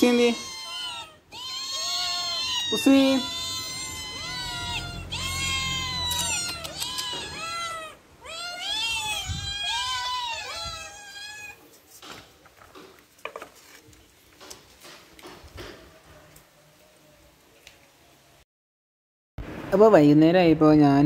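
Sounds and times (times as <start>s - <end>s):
cats meowing: 0.0s - 12.0s.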